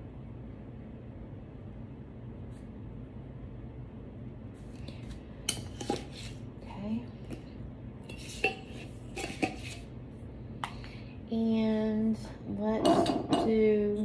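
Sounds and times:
utensils and containers clinking: 5.4 - 6.4, 8.0 - 9.9, 12.8 - 13.6.

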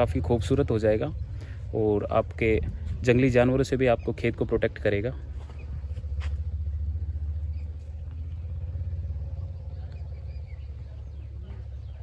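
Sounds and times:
wind buffeting microphone: 1.2 - 4.5.

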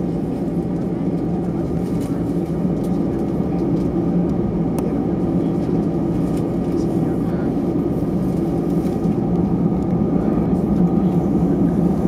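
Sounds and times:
jet engines idling: 0.0 - 12.0.

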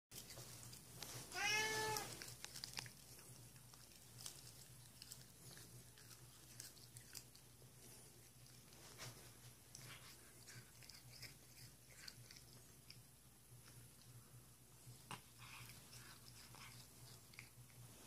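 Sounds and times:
cat chewing grass: 0.2 - 18.0
cat meowing: 1.3 - 2.2.

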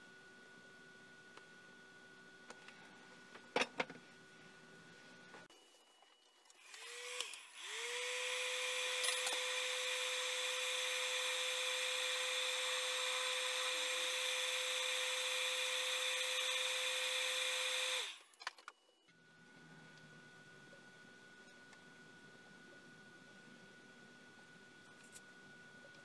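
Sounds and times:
heat gun fan whine: 6.0 - 26.0
heat gun blowing air: 6.6 - 18.2.

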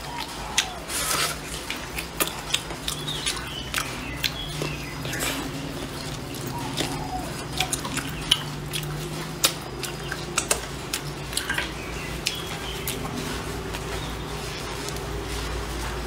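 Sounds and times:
wet chewing and lip smacks: 0.0 - 15.3
steady low hum: 0.0 - 16.0.

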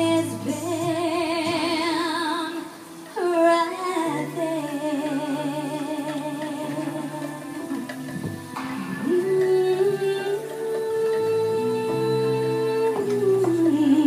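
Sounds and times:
backing music: 0.0 - 14.0
woman singing into microphone: 0.0 - 14.0.

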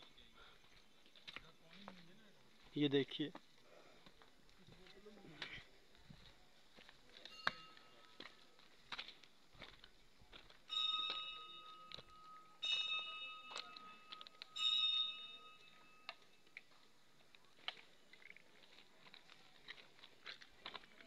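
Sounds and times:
metal bell ringing: 7.2 - 8.3, 10.7 - 16.6.

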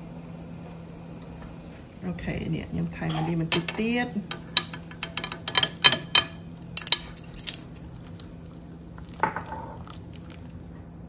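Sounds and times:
metal spoon clinking on pan: 3.1 - 7.8
broth simmering: 7.7 - 11.0.

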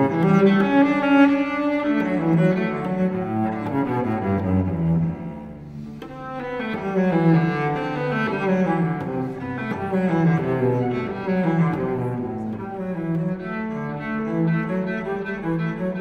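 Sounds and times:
bowed cello playing: 0.0 - 16.0.

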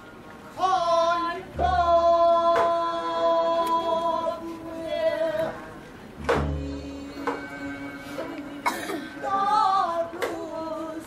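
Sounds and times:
low drum beat: 6.2 - 7.7
person singing long held note: 6.3 - 11.0.

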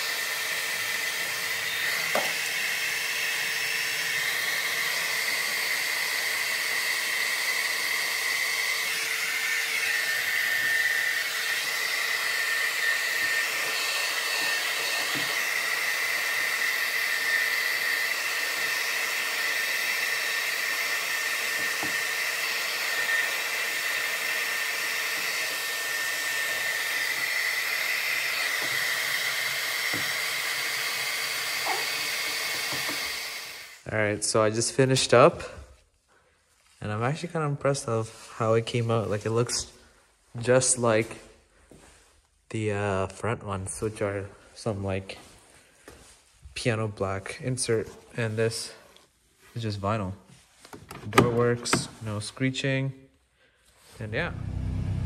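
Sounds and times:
hot-air blower whining: 0.0 - 34.2, 50.7 - 52.0, 54.0 - 55.0.

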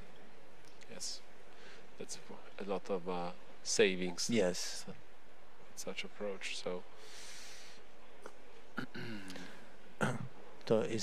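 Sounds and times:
steady background hiss: 0.0 - 11.0
person breathing near microphone: 1.5 - 2.0, 6.9 - 7.9.

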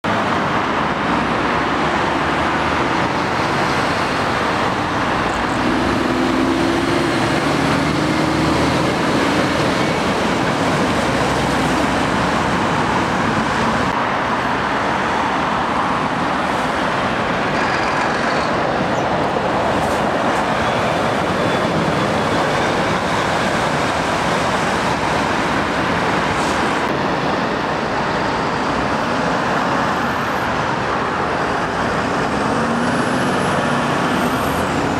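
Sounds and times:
road traffic passing: 0.0 - 34.9.

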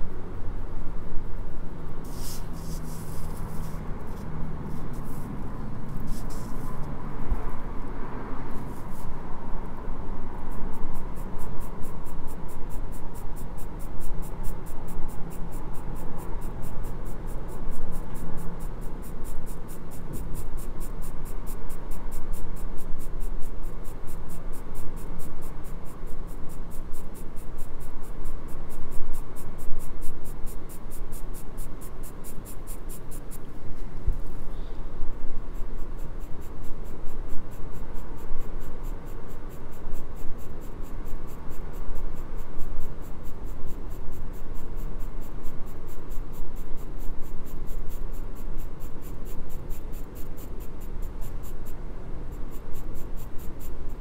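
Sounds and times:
pencil scratching on paper: 2.0 - 6.9, 8.5 - 9.2.

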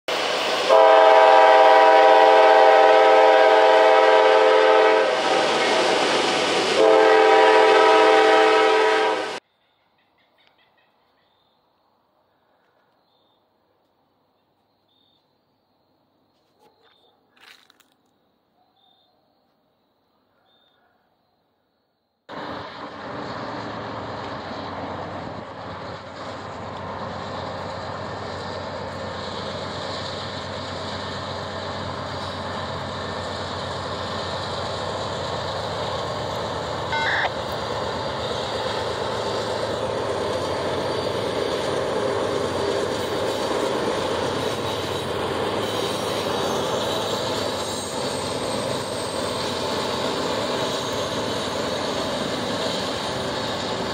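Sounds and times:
train rumble: 0.1 - 11.2, 22.3 - 53.9
locomotive engine drone: 22.3 - 53.9
brief high-pitched tone: 36.9 - 37.4.

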